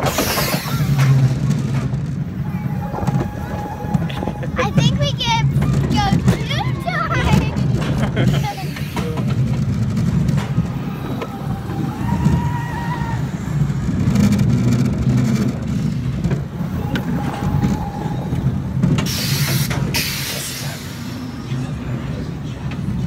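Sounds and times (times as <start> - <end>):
roller coaster rumbling on track: 0.0 - 23.0
loud hiss: 19.0 - 21.3.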